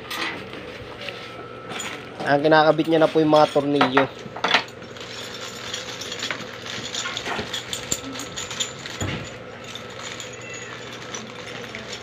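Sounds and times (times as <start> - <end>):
metal screws clinking: 3.3 - 12.0.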